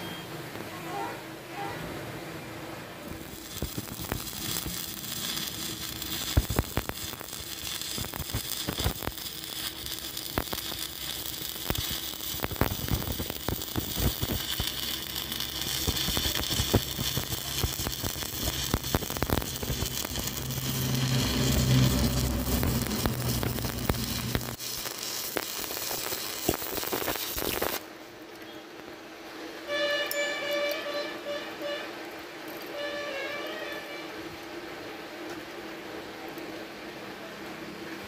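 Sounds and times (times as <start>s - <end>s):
low steady hum: 0.0s - 25.4s
welding arc hissing and crackling: 3.0s - 27.9s.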